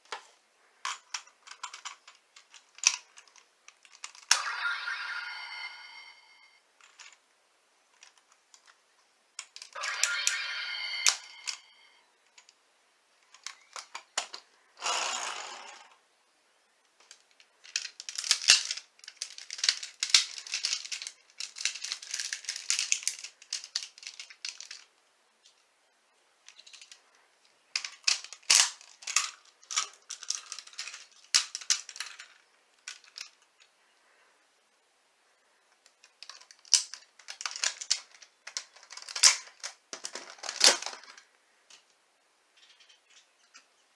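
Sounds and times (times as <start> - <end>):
plastic toy parts clicking: 0.8 - 4.5, 6.8 - 7.2, 7.9 - 8.8, 9.4 - 10.4, 13.2 - 15.9, 16.9 - 25.6, 26.4 - 27.1, 27.7 - 33.7, 35.7 - 42.0.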